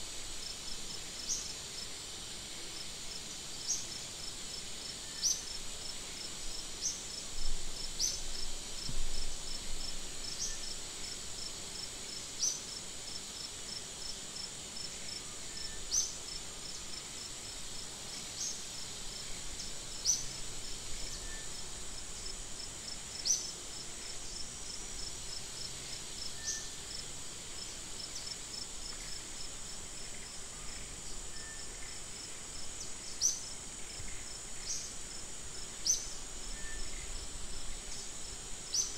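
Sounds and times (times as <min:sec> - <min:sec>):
insects chirping: 0:14.4 - 0:38.9.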